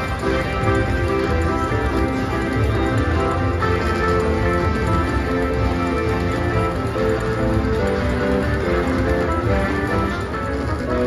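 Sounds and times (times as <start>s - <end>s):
slot machine electronic melody: 0.0s - 11.0s.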